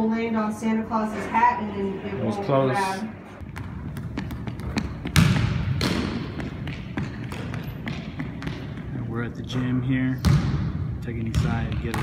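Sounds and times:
basketball bouncing on wooden floor: 3.4 - 9.0, 10.2 - 12.0.

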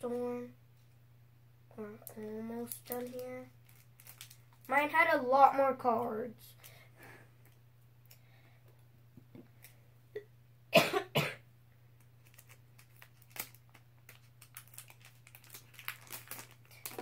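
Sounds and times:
person coughing: 10.7 - 11.4.

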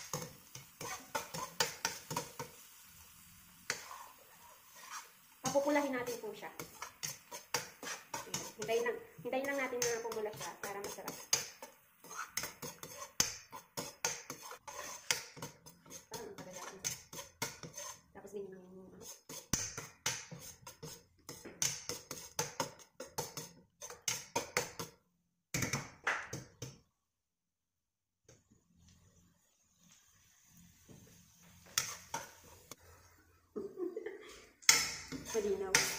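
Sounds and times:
metal ladle scraping a wok: 0.0 - 2.6, 3.6 - 18.2, 19.0 - 24.3, 31.8 - 33.2, 34.7 - 35.9
food frying: 0.0 - 18.2, 28.8 - 35.9.

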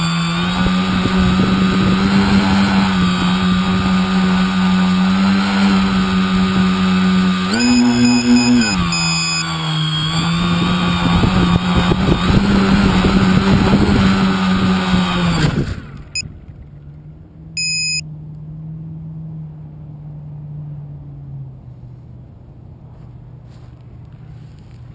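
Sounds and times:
drone motors whining: 0.0 - 16.3, 17.6 - 18.0
short electronic beep: 7.5 - 10.4, 17.6 - 18.1.

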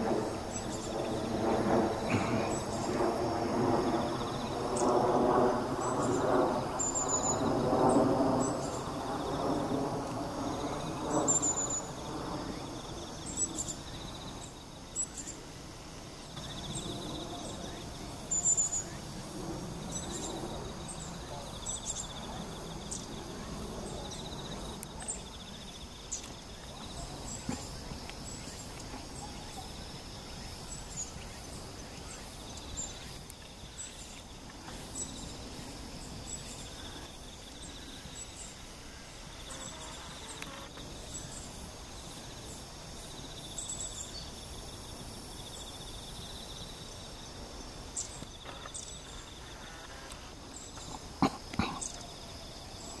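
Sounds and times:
pulsing insect trill: 0.0 - 53.0
small birds chirping: 48.0 - 53.0.

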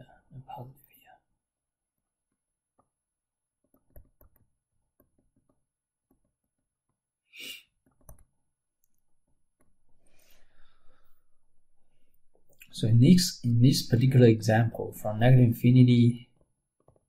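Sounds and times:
stylus tapping on tablet: 3.6 - 6.4.

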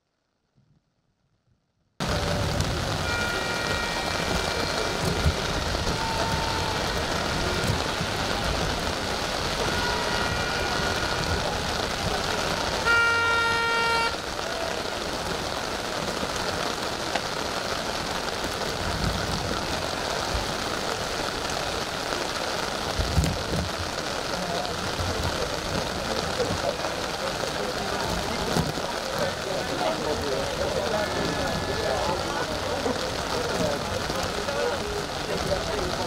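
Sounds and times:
steady rain hiss: 2.0 - 36.0
horn blast: 2.5 - 11.9, 12.7 - 14.3.

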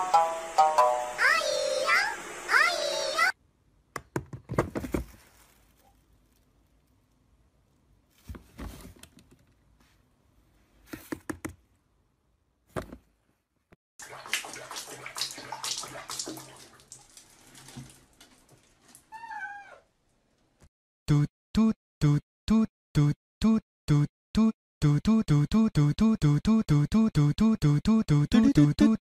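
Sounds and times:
water sloshing in a tub: 14.0 - 19.2
cat meowing: 19.1 - 19.9.

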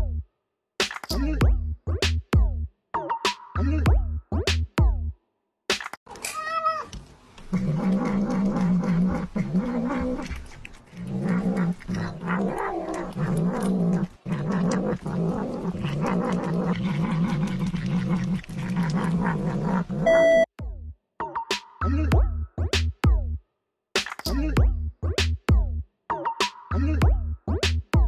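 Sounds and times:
cat growling while eating: 6.4 - 20.1.

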